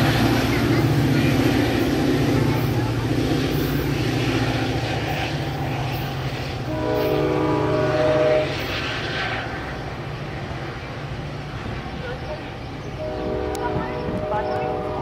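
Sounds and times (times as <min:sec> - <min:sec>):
diesel locomotive engine: 0:00.0 - 0:15.0
train horn blast: 0:06.6 - 0:08.8, 0:13.0 - 0:15.0.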